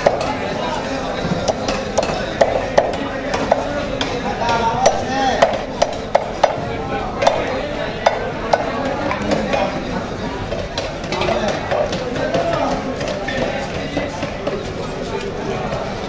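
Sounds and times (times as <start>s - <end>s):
knife chopping fish on wooden block: 1.4s - 6.6s.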